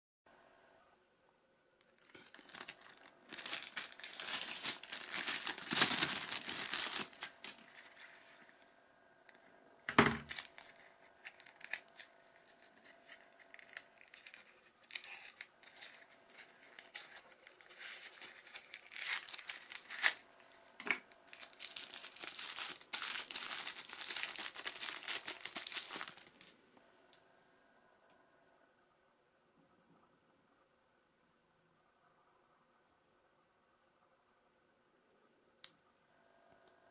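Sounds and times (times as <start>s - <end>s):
plastic bag crinkling: 1.9s - 8.6s, 9.4s - 26.6s.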